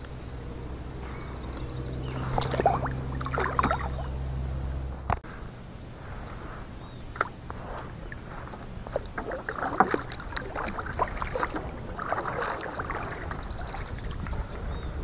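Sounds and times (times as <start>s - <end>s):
kayak paddle splashing water: 1.0s - 4.4s, 7.1s - 15.0s.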